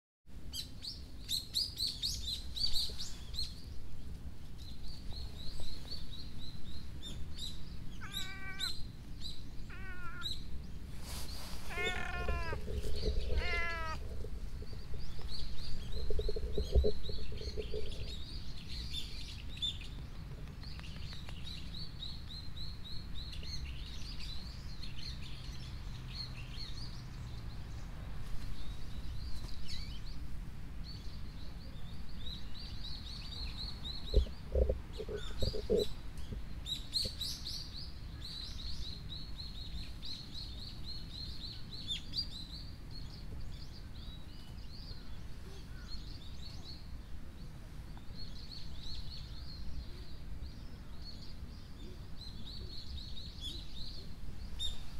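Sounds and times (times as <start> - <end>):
small birds chirping: 0.5 - 54.9
cat meowing: 8.0 - 8.8, 9.7 - 10.4, 11.7 - 14.0.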